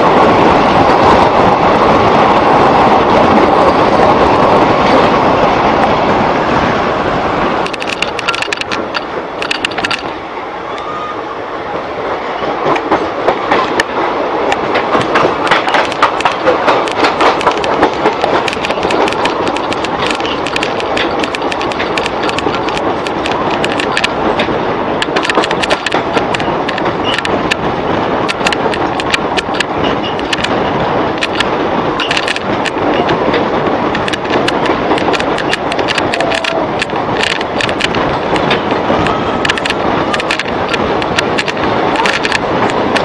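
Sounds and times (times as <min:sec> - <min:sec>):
train wheels rumbling on rail: 0:00.0 - 0:43.0
sharp clicks and clacks: 0:07.6 - 0:10.2, 0:12.6 - 0:43.0.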